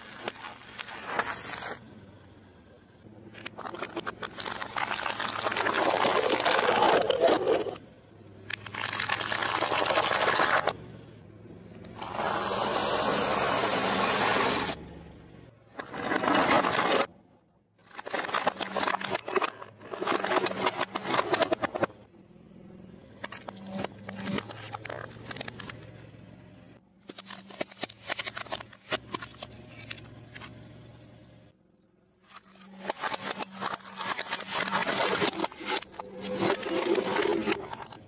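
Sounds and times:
tyre crushing plastic and food: 3.4s - 7.7s, 8.6s - 10.8s, 17.8s - 22.0s, 32.4s - 38.0s.

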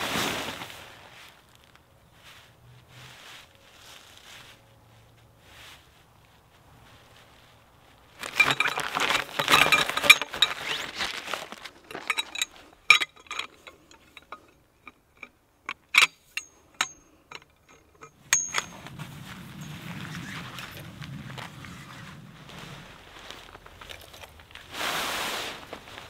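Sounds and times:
tent pole bundle rustling and rattling: 0.0s - 26.0s
tent pole sections clicking: 7.9s - 26.0s.

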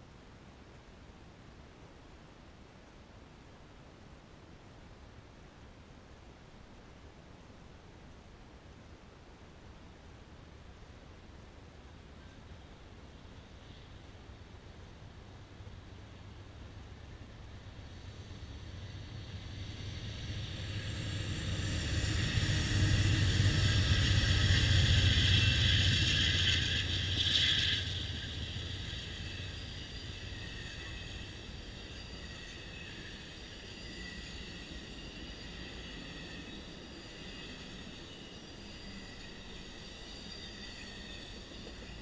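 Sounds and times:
diesel locomotives passing: 12.2s - 42.0s
passenger cars rolling past: 15.5s - 42.0s.

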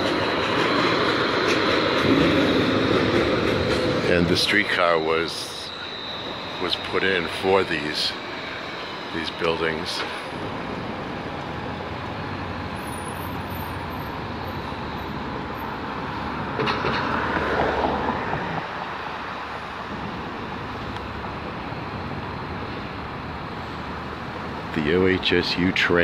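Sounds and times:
city street traffic: 0.0s - 26.0s
vehicle passing: 16.3s - 18.9s.

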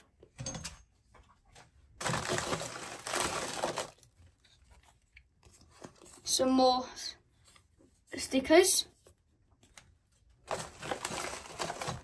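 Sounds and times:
packaging crinkling and tearing: 2.0s - 5.2s, 10.4s - 12.0s.

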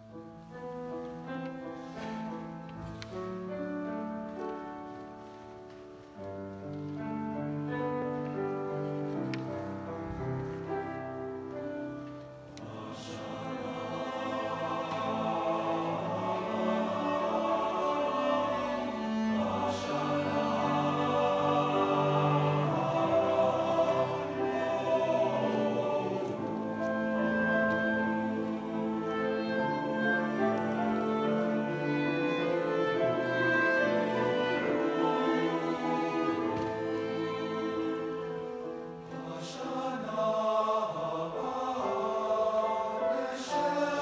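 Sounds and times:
clarinet: 0.0s - 39.1s
cello: 0.0s - 44.0s
piano: 0.0s - 44.0s
violin: 0.0s - 44.0s
male choir singing: 12.6s - 44.0s.

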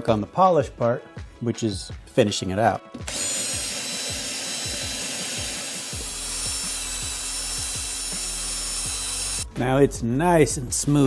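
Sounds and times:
drill motor whine: 3.1s - 9.5s
sanding drum grinding metal: 3.1s - 9.5s.

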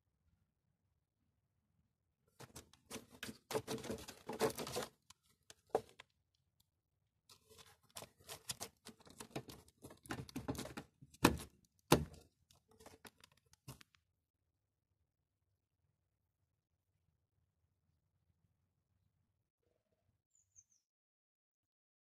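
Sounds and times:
plastic parts rustling and clicking: 2.4s - 6.1s, 7.3s - 14.0s.

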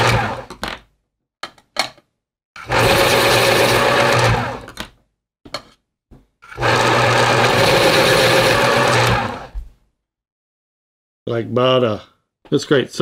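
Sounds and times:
electric pencil sharpener grinding: 0.0s - 0.7s, 2.6s - 4.9s, 6.4s - 9.6s.

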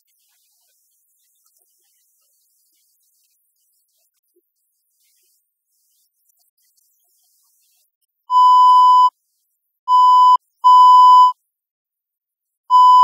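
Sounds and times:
censor bleep tone: 8.3s - 9.1s, 9.9s - 11.3s, 12.7s - 13.0s.

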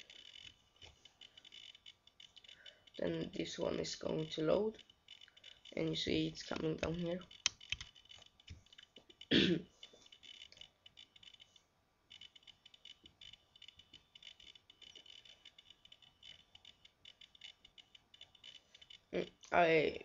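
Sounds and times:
faint high-pitched crackling: 0.0s - 20.0s
person coughing: 9.3s - 9.7s.

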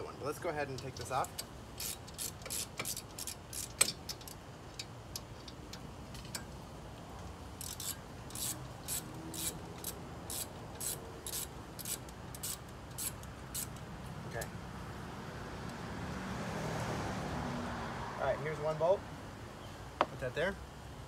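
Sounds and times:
socket ratchet rasping: 1.2s - 6.4s, 7.6s - 13.8s.

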